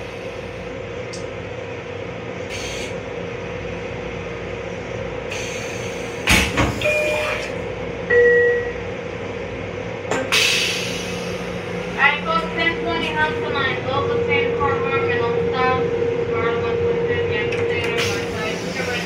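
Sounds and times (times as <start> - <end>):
railcar equipment hum: 0.0 - 19.0
short hisses: 10.3 - 11.6.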